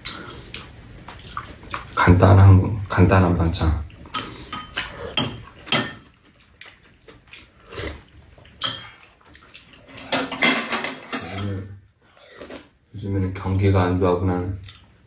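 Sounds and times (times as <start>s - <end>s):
eating sounds: 0.0s - 2.2s, 3.8s - 10.2s
metal spoons clinking on bowls: 4.1s - 6.1s, 8.6s - 9.1s, 9.7s - 11.7s.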